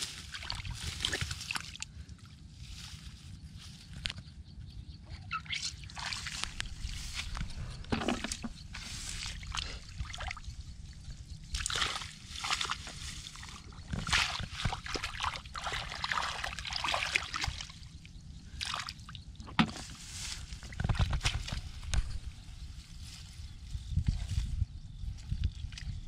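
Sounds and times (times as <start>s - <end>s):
splashing in muddy water: 0.1s - 1.8s, 5.4s - 7.0s, 11.5s - 18.0s, 18.6s - 19.2s.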